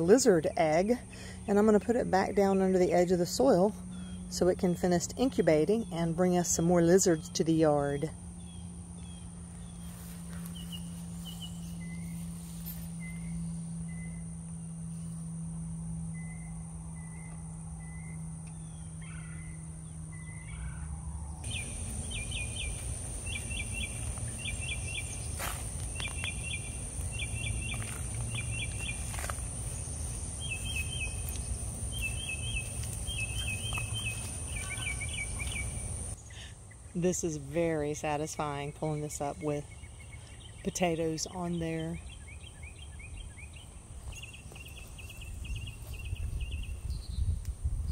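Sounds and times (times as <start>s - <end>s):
birds chirping: 0.0s - 14.8s, 16.1s - 47.4s
low steady hum: 0.0s - 47.9s
high-pitched insect drone: 10.6s - 36.2s.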